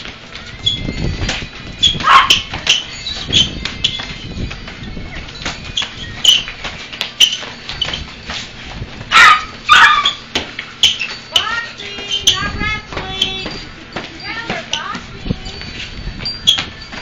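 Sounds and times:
small dog barking: 0:02.0 - 0:02.4, 0:09.1 - 0:10.2.

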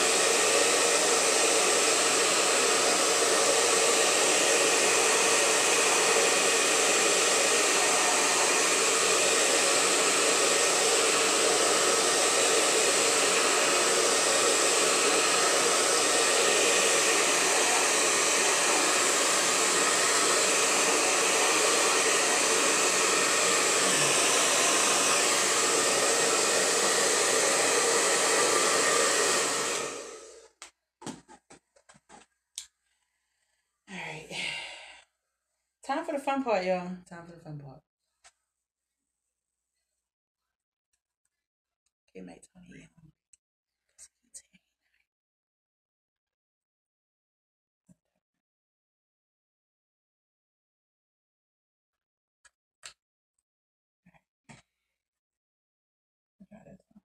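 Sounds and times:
hair dryer blowing: 0:00.0 - 0:30.6.

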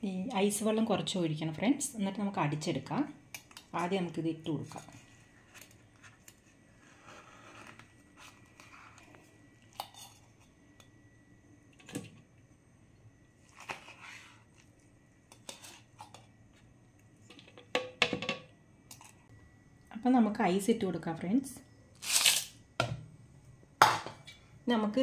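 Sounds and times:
spoon scraping steel bowl: 0:15.3 - 0:16.3.

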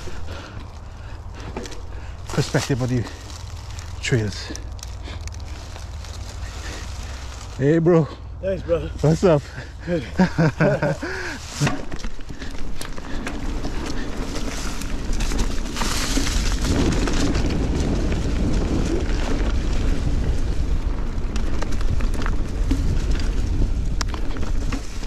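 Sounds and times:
bike clicks and rattles: 0:00.0 - 0:07.6, 0:09.2 - 0:25.0
knobby tyres rolling on dirt: 0:00.0 - 0:25.0
wind buffeting microphone: 0:08.2 - 0:25.0.

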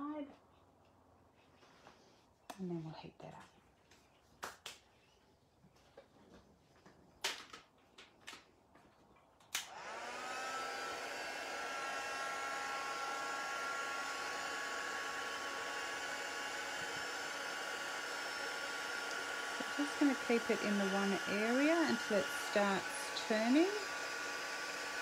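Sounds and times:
heat tool fan whirring: 0:09.5 - 0:25.0
heat tool clicking on: 0:18.9 - 0:24.0.

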